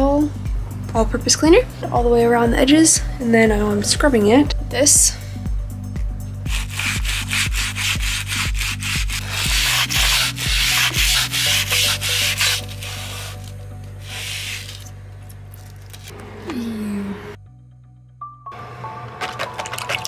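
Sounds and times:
background music with beat: 4.0s - 14.0s
brush scrubbing window track: 6.5s - 14.9s.

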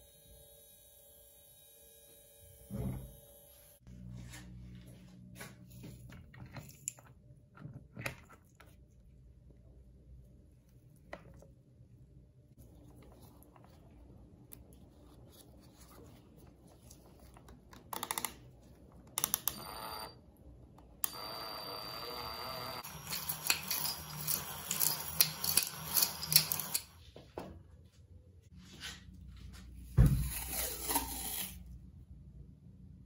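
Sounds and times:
small clicks: 19.1s - 20.0s.

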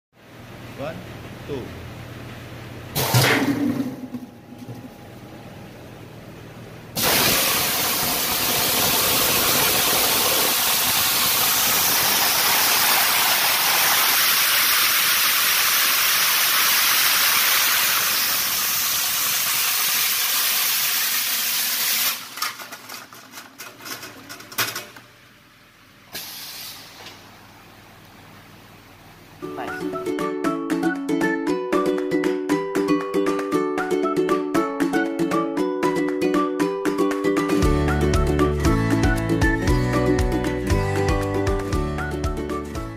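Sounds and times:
onion peeling machine air rush: 7.0s - 22.9s, 26.1s - 27.1s.

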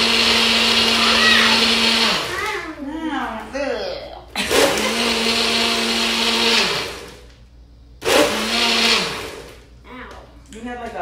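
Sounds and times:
blender crushing ice: 0.0s - 2.6s, 4.4s - 7.2s, 8.0s - 9.6s.

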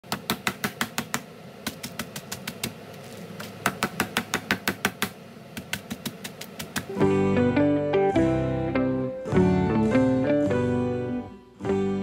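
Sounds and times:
cucumber bag beaten on cutting board: 0.1s - 6.9s.

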